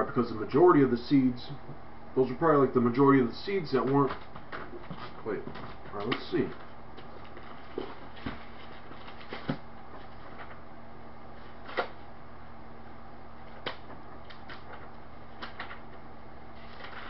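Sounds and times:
steady hum and hiss: 0.0s - 17.0s
clicks and rustles of handling: 3.8s - 10.6s, 13.5s - 16.0s.

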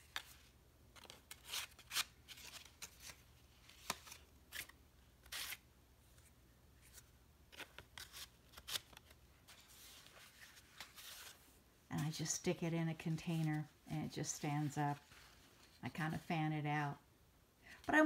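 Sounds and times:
paper rustling: 0.0s - 12.3s.

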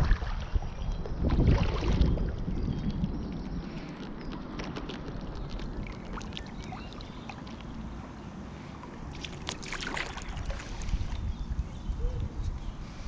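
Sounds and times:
splashes and knocks: 0.0s - 0.6s, 1.2s - 3.1s, 9.1s - 11.1s
water lapping around paddle board: 0.0s - 11.6s
wind rumbling on microphone: 0.0s - 13.0s.

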